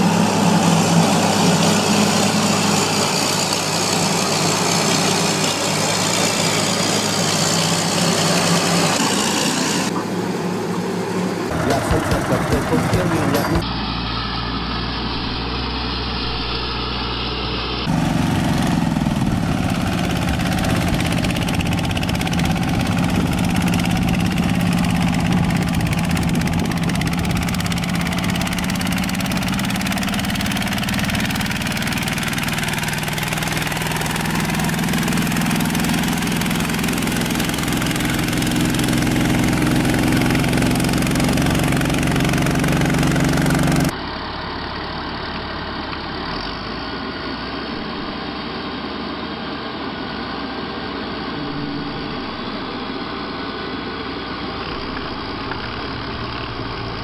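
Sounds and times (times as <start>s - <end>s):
tractor engine droning: 0.0s - 57.0s.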